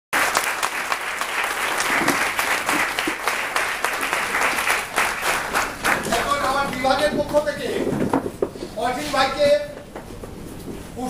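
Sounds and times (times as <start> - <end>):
audience applauding: 0.1 - 7.3.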